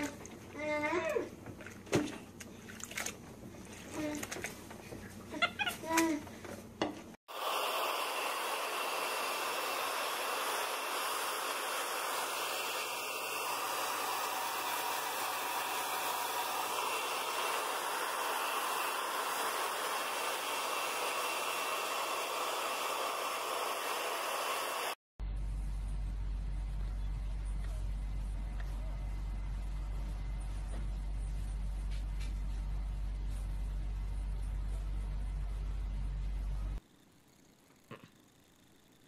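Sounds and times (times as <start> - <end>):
hair dryer blowing: 7.3 - 25.0.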